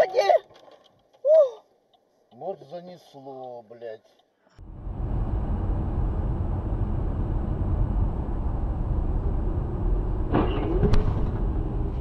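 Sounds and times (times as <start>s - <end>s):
car road and engine rumble: 4.6s - 12.0s.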